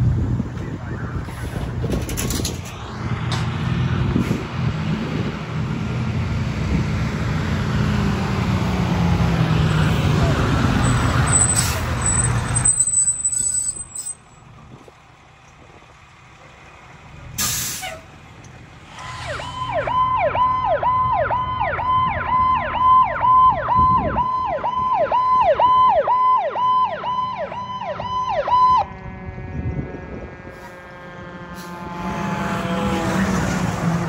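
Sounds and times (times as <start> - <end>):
fire truck engine passing: 0.0 - 34.0
air brake hiss: 17.4 - 18.1
electronic siren: 19.0 - 33.6.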